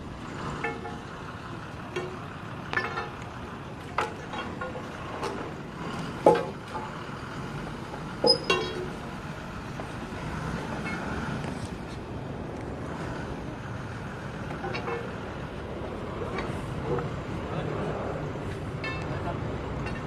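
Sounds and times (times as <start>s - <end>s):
diesel engine running: 0.0s - 20.0s
sharp metal clanks: 1.9s - 3.2s, 8.2s - 9.0s, 18.8s - 19.2s.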